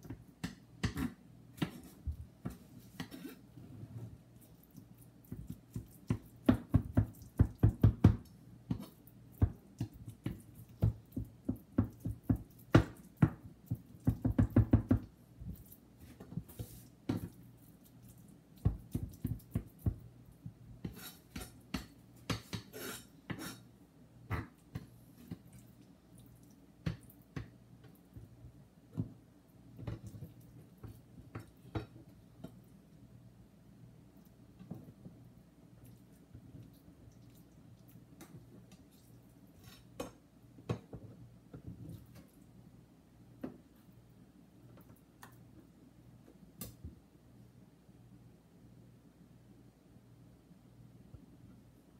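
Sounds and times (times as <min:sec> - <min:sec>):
knife chopping on plastic board: 0:00.0 - 0:03.4, 0:05.2 - 0:15.1, 0:20.8 - 0:23.6.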